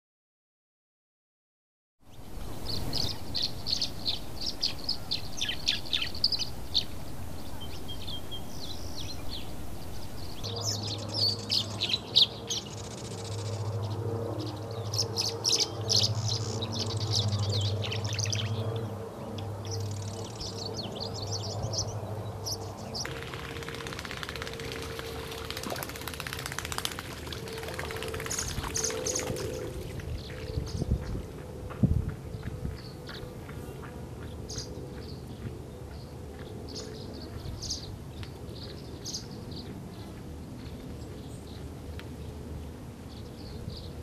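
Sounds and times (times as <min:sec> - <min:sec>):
swallows chirping and twittering: 0:02.1 - 0:23.1, 0:28.0 - 0:31.2, 0:32.8 - 0:42.3
low mechanical hum: 0:02.1 - 0:44.0.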